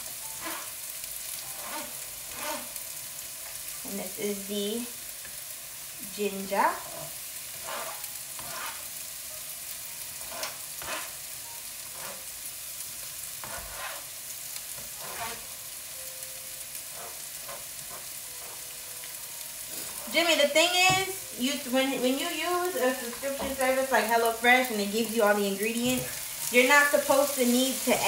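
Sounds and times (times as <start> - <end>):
vegetables sizzling in oil: 0.0 - 28.0
knife scraping cutting board: 0.4 - 0.8, 1.5 - 2.8, 6.9 - 8.9, 10.2 - 11.2, 11.9 - 12.3, 13.4 - 14.1, 14.8 - 15.4, 16.9 - 18.6.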